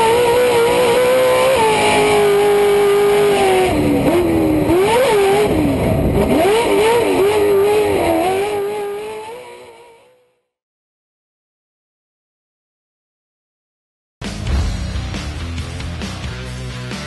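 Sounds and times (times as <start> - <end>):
race truck engine revving: 0.0 - 10.2.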